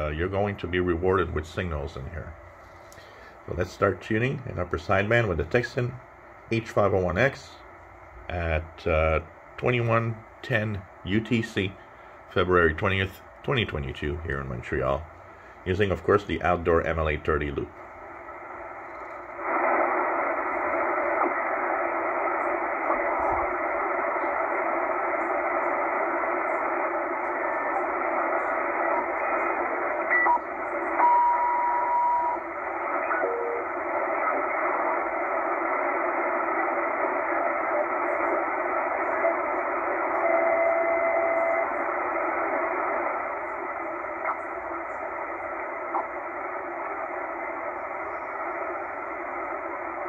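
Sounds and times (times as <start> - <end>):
radio static hiss: 0.0 - 50.0
radio carrier whistle tones: 30.0 - 32.4, 40.2 - 41.8.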